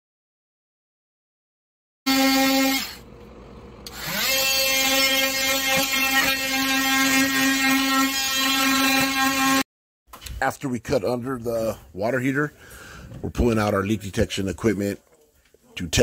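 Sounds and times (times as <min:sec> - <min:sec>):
oscillating multi-tool buzzing: 0:02.1 - 0:03.1, 0:03.8 - 0:09.7.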